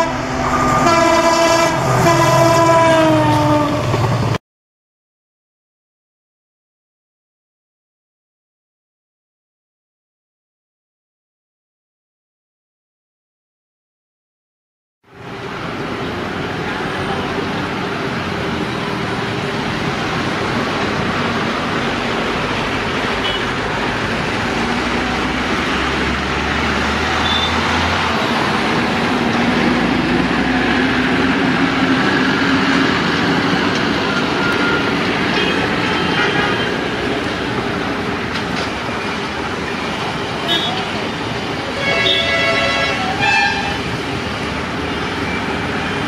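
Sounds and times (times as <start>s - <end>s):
locomotive engine rumbling: 0.0s - 4.4s, 15.2s - 46.0s.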